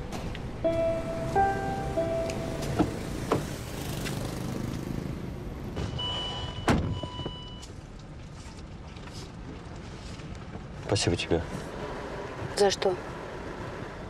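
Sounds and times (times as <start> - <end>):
car door clicks: 2.2 - 3.5.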